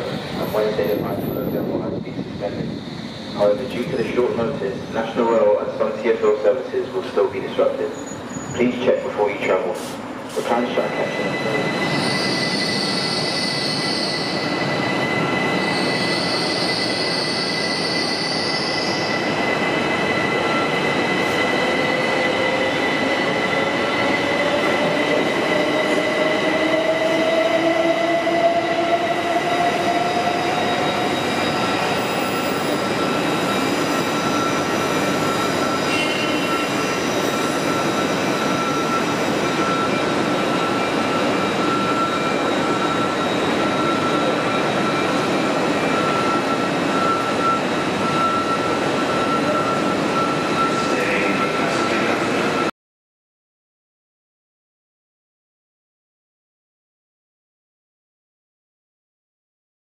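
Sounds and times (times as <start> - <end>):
trains running mechanical din: 0.0 - 52.7
high squeals: 10.9 - 52.3.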